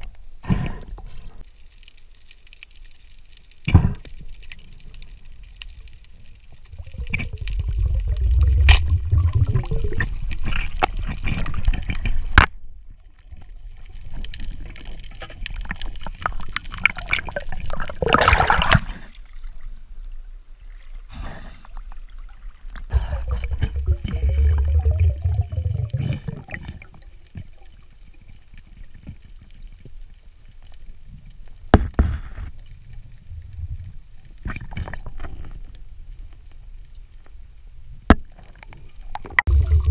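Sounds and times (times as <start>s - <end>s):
water rushing and gurgling underwater: 0.0s - 39.9s
water splash: 6.7s - 11.8s, 16.6s - 19.1s, 22.8s - 27.1s, 39.2s - 39.9s.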